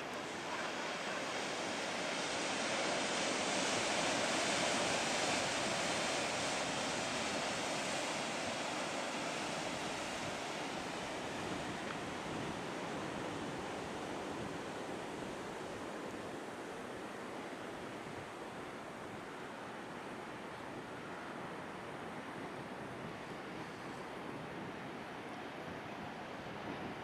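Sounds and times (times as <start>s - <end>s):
surf breaking into whitewater: 0.0s - 16.0s.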